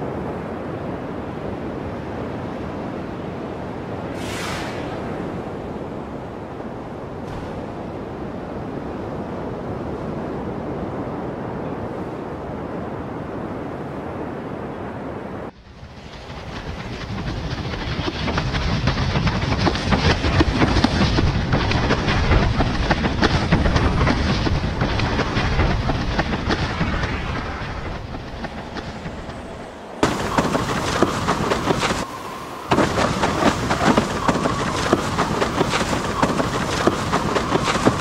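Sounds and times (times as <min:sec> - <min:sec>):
wind buffeting the microphone: 0:00.0 - 0:38.0
breaking surf: 0:04.0 - 0:06.5, 0:18.0 - 0:38.0.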